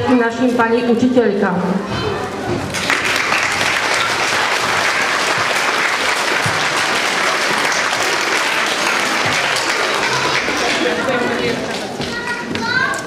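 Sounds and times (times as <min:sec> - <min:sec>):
audience applauding: 0:02.7 - 0:12.8.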